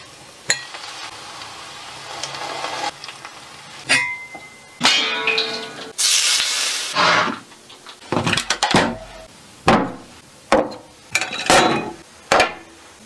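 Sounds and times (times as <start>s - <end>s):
hot oil sizzling: 0.0s - 13.0s.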